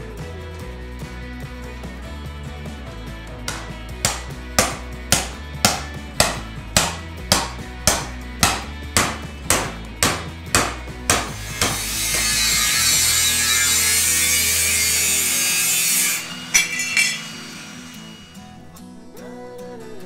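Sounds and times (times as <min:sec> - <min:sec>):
background music: 0:00.0 - 0:20.0
hammer blows on sheet steel: 0:03.5 - 0:18.6
harsh grinding hiss: 0:11.3 - 0:18.8.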